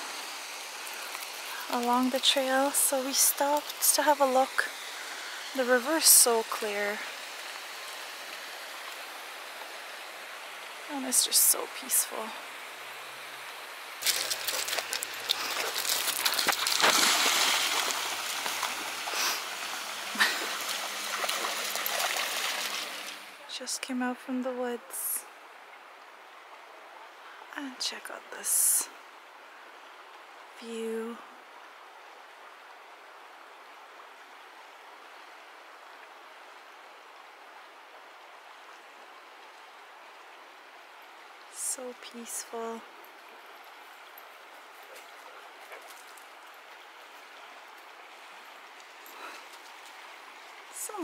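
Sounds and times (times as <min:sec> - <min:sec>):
river flowing: 0:00.0 - 0:51.0
dog splashing through water: 0:14.0 - 0:23.2.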